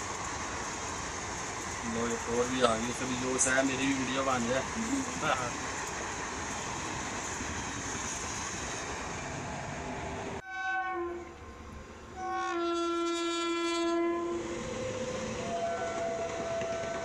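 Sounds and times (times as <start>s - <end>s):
electric train rumbling past: 0.0s - 17.0s
locomotive horn blasts: 10.4s - 11.4s, 12.2s - 14.5s, 15.4s - 17.0s.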